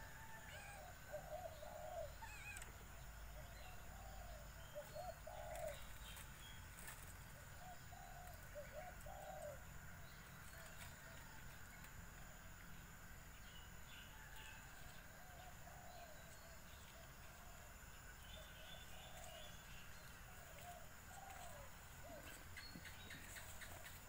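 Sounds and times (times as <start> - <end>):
doves cooing: 0.0 - 6.2, 7.6 - 11.2, 18.4 - 19.6, 20.2 - 24.0.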